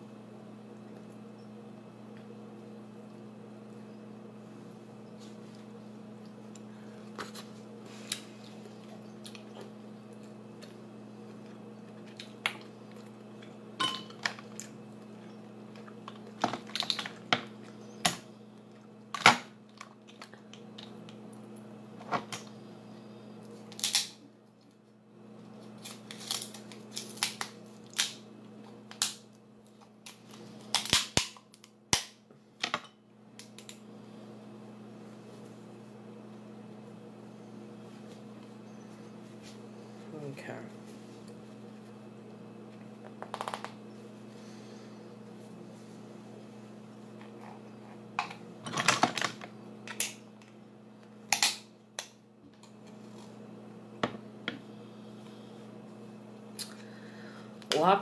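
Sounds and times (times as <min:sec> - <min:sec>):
lobster shell cracking: 0:15.7 - 0:18.2, 0:23.7 - 0:24.2, 0:25.8 - 0:28.2, 0:30.0 - 0:32.2, 0:51.3 - 0:52.7.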